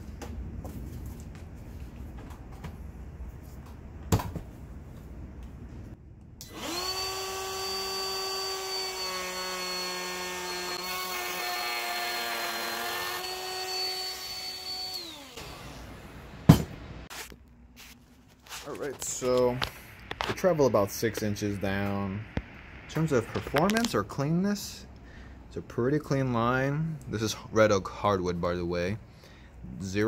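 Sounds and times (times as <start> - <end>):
router high whine: 6.4 - 16.3.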